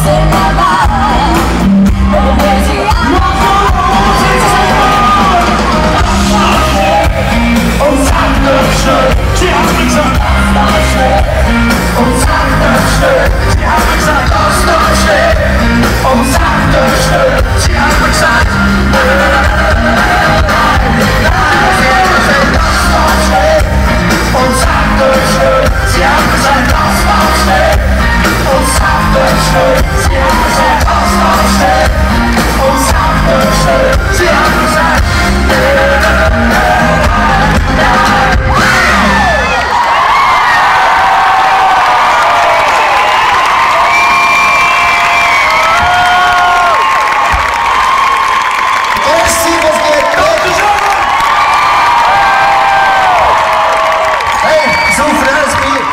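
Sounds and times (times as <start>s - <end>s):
male vocals: 0.0s - 39.6s
live rock band playing: 0.0s - 40.0s.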